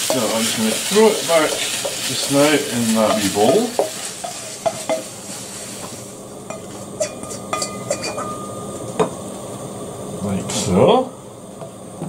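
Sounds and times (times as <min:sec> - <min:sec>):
food scraped from a wok: 0:00.0 - 0:08.3
cookware clinking and knocking: 0:06.5 - 0:09.1.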